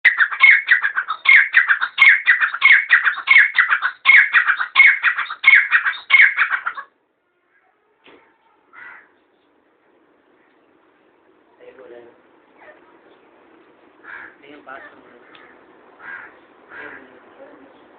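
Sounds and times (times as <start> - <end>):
francolin calling: 0.0 - 6.8.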